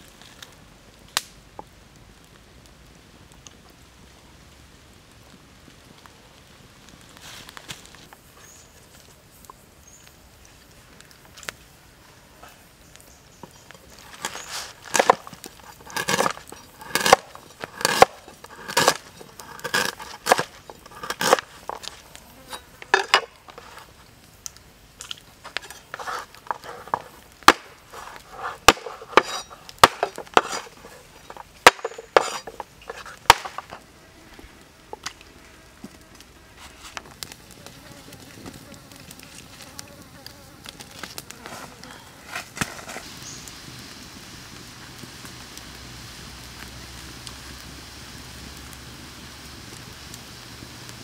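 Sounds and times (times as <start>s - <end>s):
knife chopping on wooden board: 17.8s - 19.0s, 19.6s - 21.4s, 31.7s - 32.4s.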